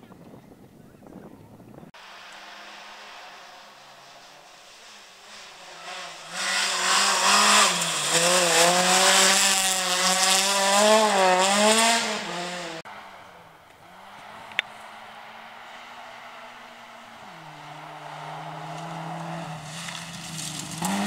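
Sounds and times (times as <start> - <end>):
rally car engine revving: 2.0 - 21.0
tyres hissing on gravel: 19.5 - 21.0.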